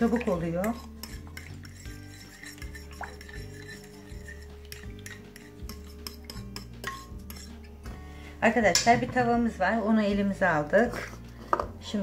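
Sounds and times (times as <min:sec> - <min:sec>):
metal spoon scraping glass dish: 0:00.0 - 0:07.8
soft background music: 0:00.0 - 0:12.0.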